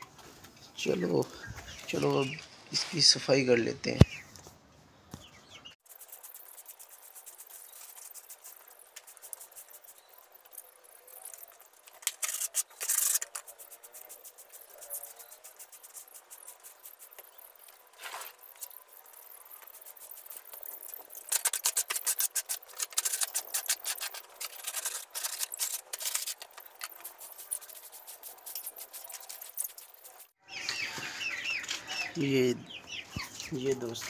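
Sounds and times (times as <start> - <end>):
scratchy cleaning strokes on floor: 5.8 - 30.4.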